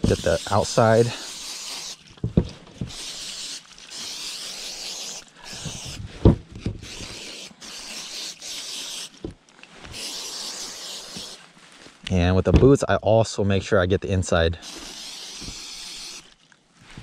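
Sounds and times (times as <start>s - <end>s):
spray bottle hissing: 0.0s - 2.1s, 2.8s - 6.0s, 6.8s - 9.2s, 9.9s - 11.4s, 14.6s - 16.3s
thump: 2.2s - 2.9s, 6.2s - 6.9s.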